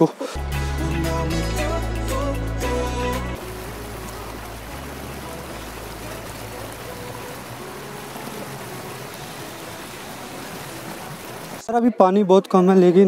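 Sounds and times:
waterfall hissing: 0:01.4 - 0:11.7.

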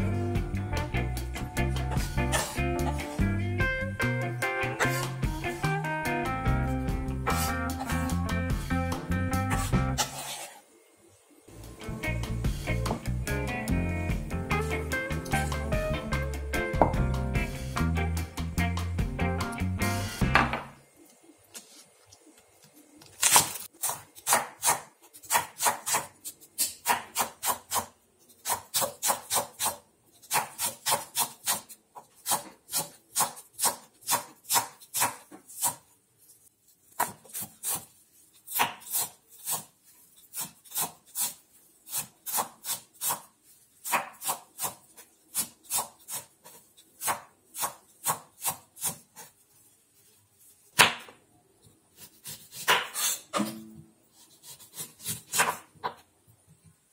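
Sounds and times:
knife chopping on wooden board: 0:36.9 - 0:37.9, 0:52.0 - 0:53.5, 0:54.4 - 0:56.0.

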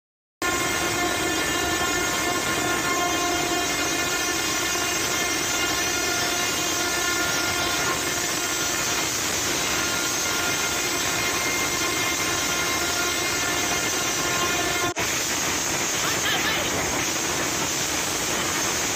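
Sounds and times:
steady rushing noise: 0:07.2 - 0:18.9.

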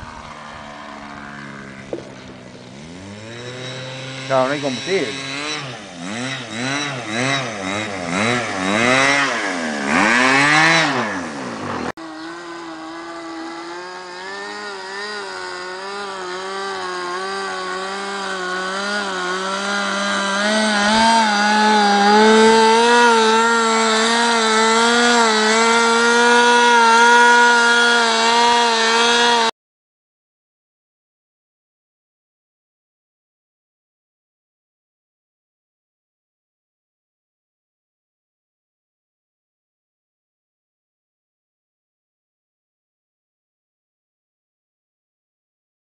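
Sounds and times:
model plane engine buzzing: 0:00.0 - 0:29.5.

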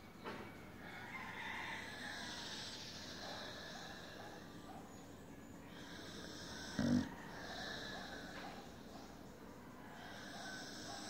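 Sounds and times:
dog breathing: 0:05.5 - 0:11.0
dog snorting: 0:05.9 - 0:09.1.

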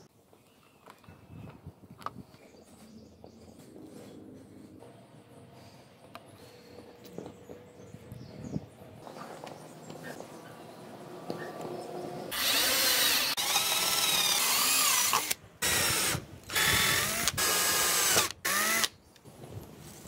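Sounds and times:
cordless drill whining: 0:12.3 - 0:19.0.

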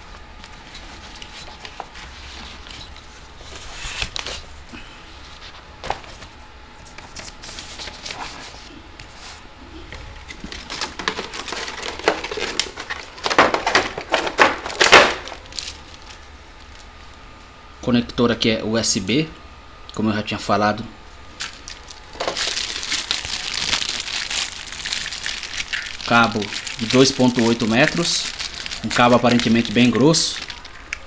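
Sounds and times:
headset cable clicks and rustles: 0:21.4 - 0:31.0.

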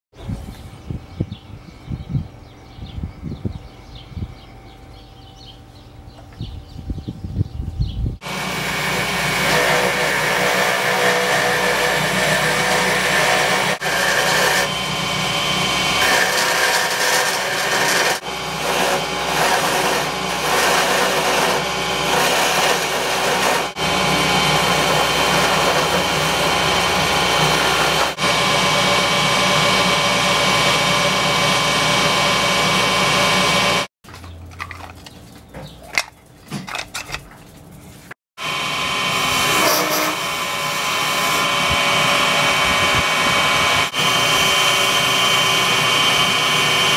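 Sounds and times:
lathe motor hum: 0:08.2 - 0:33.9, 0:38.4 - 0:46.9
turning tool scraping wood: 0:08.3 - 0:32.3.

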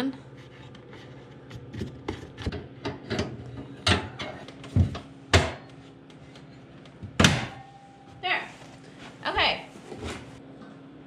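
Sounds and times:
heater clicks and clunks: 0:01.6 - 0:07.7.

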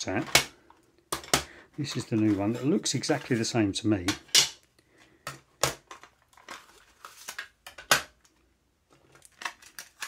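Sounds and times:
plastic cassette cases clicking: 0:09.2 - 0:10.0.

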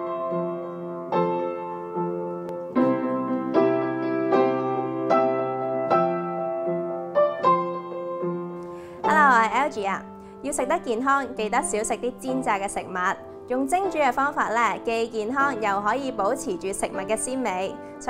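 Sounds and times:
soft piano chords: 0:00.0 - 0:18.0.

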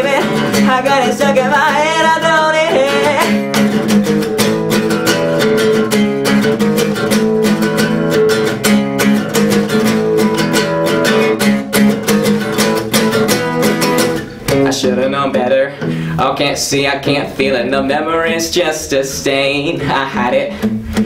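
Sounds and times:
acoustic guitar strumming: 0:00.0 - 0:21.0.

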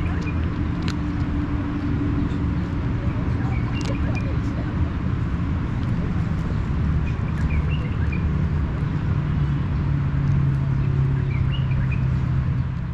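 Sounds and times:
engine drone: 0:00.0 - 0:12.9
traffic rumble: 0:00.0 - 0:12.9
small bird chirping: 0:06.4 - 0:09.8.

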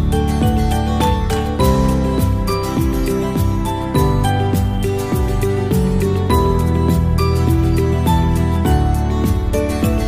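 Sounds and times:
upbeat background music: 0:00.0 - 0:10.0.

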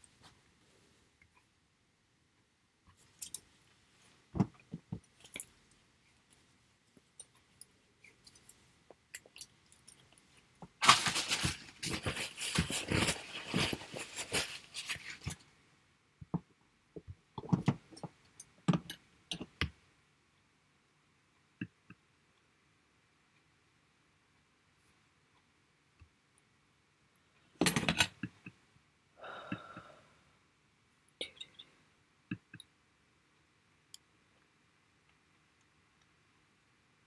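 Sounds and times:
crackling rustling handling noise: 0:02.9 - 0:15.6.

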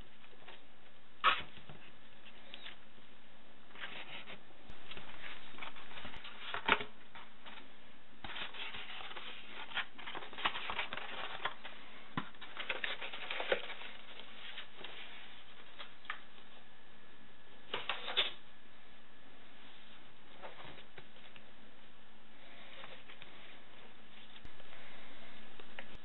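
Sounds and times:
paper and cardboard rustling: 0:03.7 - 0:16.2.

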